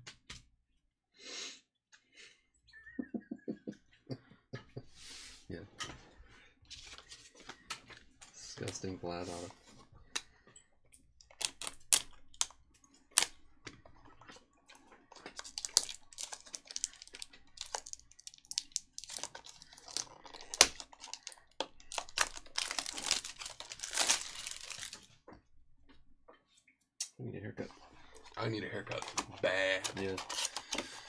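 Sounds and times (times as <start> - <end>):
plastic wrap crinkling and tearing: 11.2 - 13.5, 14.8 - 25.2, 28.0 - 31.0.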